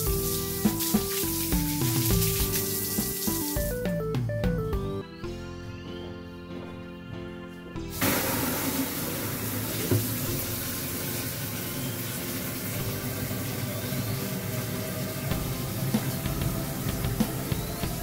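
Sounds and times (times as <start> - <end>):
tap water pouring into plastic jug: 0.0 - 3.8, 8.0 - 18.0.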